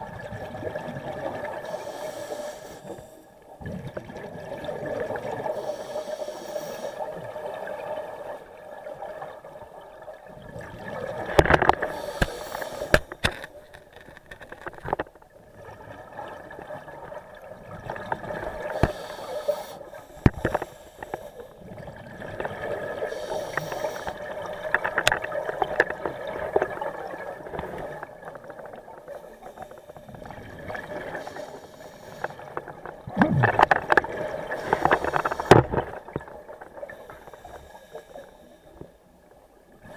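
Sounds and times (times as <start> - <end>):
regulator hissing inhale: 1.6 - 3.4, 5.4 - 7.0, 11.8 - 13.3, 18.6 - 21.6, 23.0 - 24.2, 29.2 - 30.3, 31.1 - 32.6, 34.5 - 35.8, 36.8 - 39.0
gurgling exhaled bubbles: 3.6 - 5.6, 9.0 - 12.1, 21.6 - 29.1, 32.2 - 37.5.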